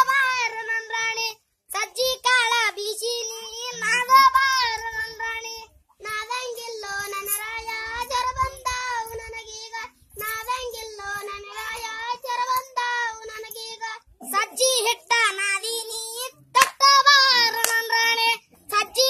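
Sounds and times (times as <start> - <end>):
child singing: 0.0 - 19.0.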